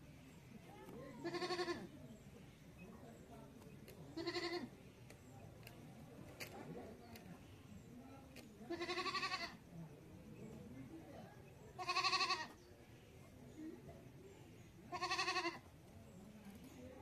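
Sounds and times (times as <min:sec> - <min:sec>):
goat bleating: 0:01.2 - 0:01.9, 0:04.2 - 0:04.7, 0:08.7 - 0:09.6, 0:11.8 - 0:12.5, 0:14.9 - 0:15.6.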